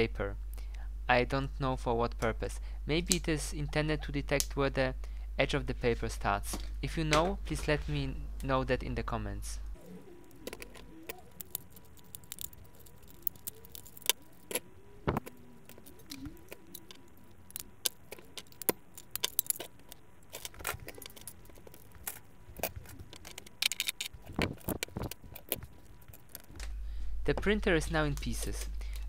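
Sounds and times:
printer parts clicking and rattling: 10.3s - 26.6s.

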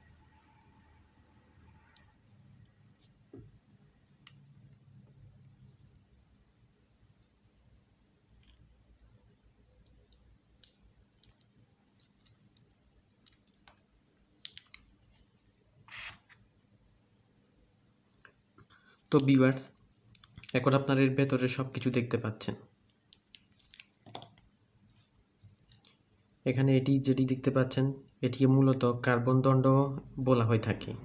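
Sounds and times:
metal casing crackle: 8.4s - 15.5s, 22.9s - 24.3s.

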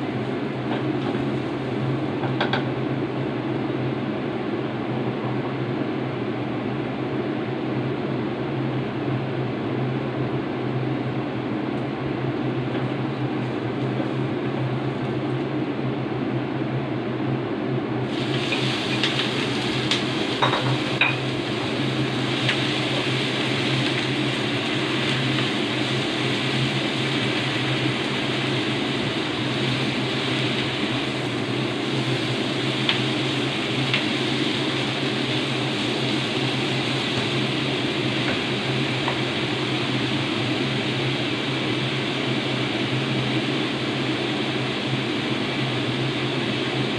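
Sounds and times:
vegetables sizzling in hot oil: 0.0s - 2.8s, 18.0s - 46.9s
steady low hum: 0.0s - 46.9s.

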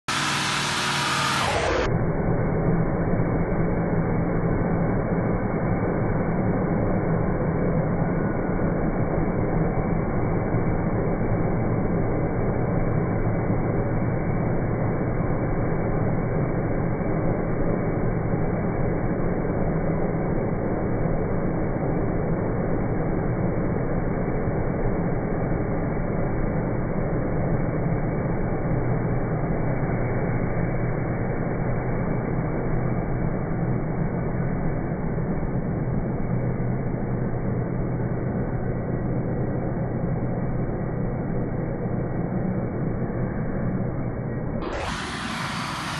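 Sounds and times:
crop sprayer engine running: 44.6s - 45.9s.

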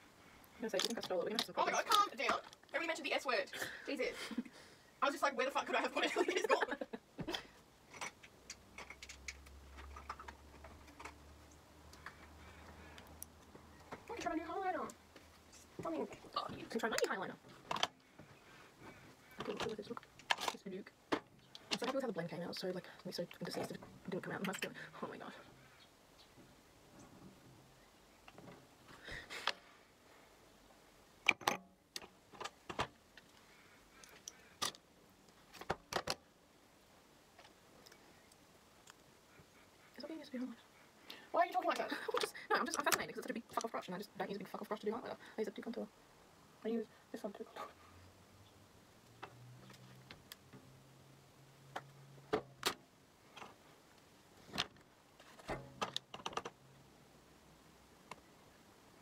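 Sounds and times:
makeup brushes clicking and tapping: 7.9s - 14.2s, 19.3s - 22.2s, 55.5s - 56.6s
makeup palettes clicking and tapping: 35.5s - 36.2s, 55.5s - 56.6s.

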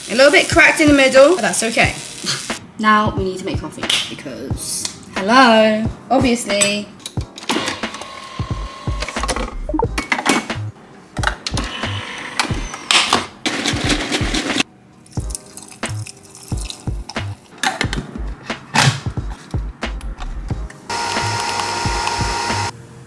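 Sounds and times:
background music with steady beat: 0.8s - 22.8s.

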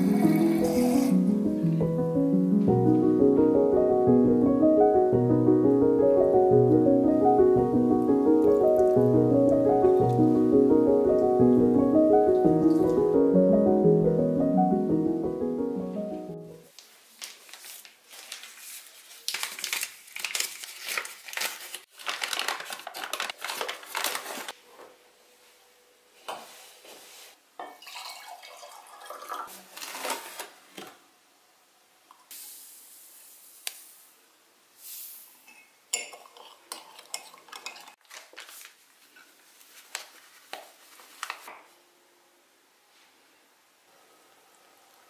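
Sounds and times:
paper bags rustling: 16.7s - 24.7s, 29.5s - 30.6s, 38.0s - 41.5s.

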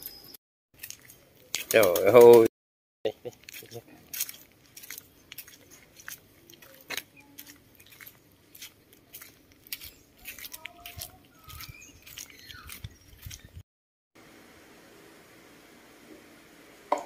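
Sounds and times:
handling clicks and rustles: 0.8s - 2.5s
baby monkeys squeaking: 9.8s - 13.6s.

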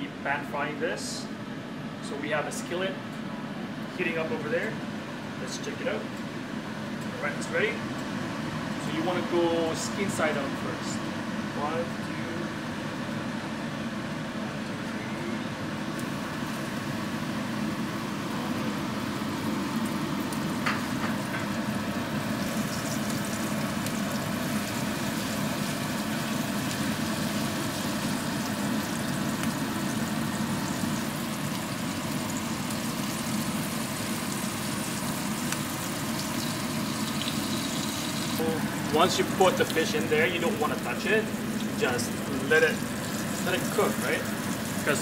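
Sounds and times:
fish sizzling in a skillet: 16.0s - 45.0s.

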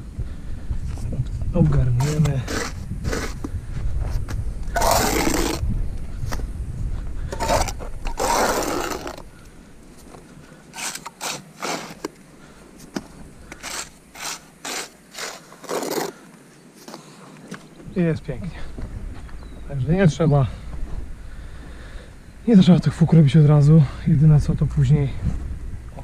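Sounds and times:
trowel scraping wet mortar: 2.0s - 3.5s, 4.7s - 5.6s, 7.3s - 9.2s, 10.7s - 12.2s, 13.5s - 16.2s.

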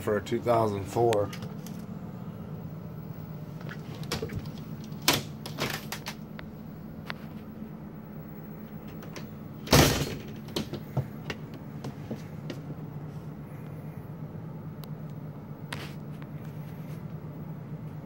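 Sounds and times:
steady low hum: 0.0s - 18.0s
door shutting with a bang: 9.0s - 11.1s.

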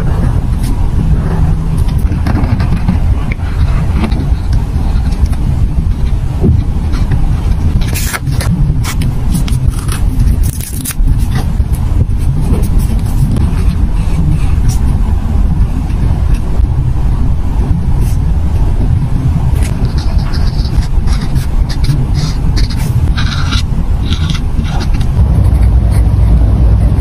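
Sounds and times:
low rumble: 0.0s - 27.0s
paper crackling: 7.0s - 14.8s.

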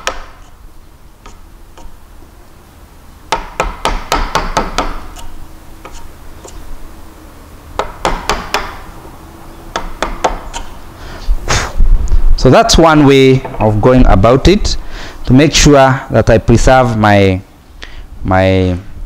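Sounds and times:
mallet striking chisel handle: 0.0s - 0.6s, 3.3s - 6.6s, 7.8s - 8.8s, 9.7s - 10.8s.

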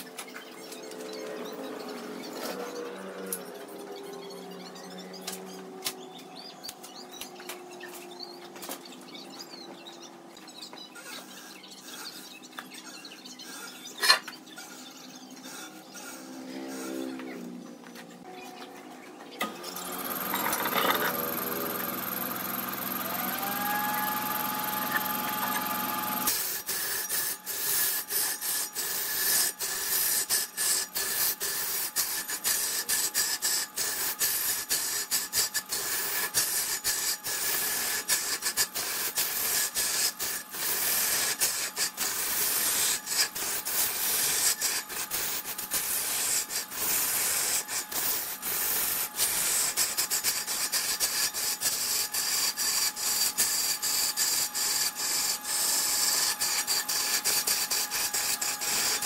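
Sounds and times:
faint machine hum: 0.0s - 59.0s
lathe tool scraping wood: 19.4s - 59.0s.

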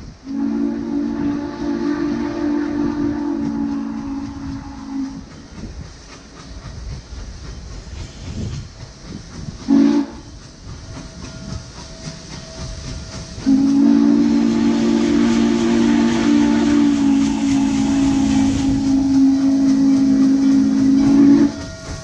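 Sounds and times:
steam locomotive rumble: 0.0s - 22.0s
steam whistle blasts: 0.2s - 5.2s, 9.7s - 10.3s, 13.4s - 22.0s.

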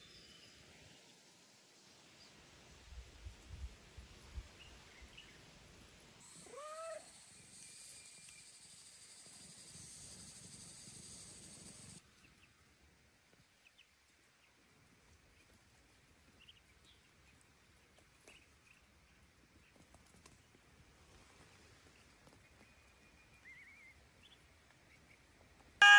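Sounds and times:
steady high hiss: 0.0s - 13.1s.

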